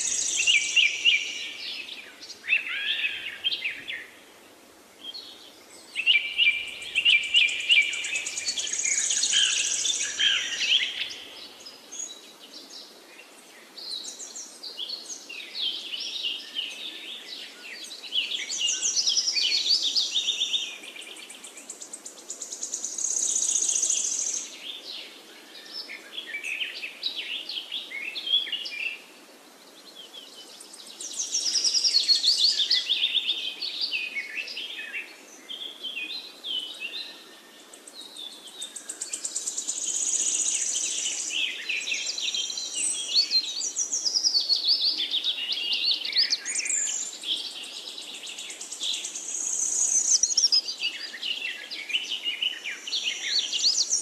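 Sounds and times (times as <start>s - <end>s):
birds chirping and singing: 0.0s - 4.2s, 30.2s - 54.0s.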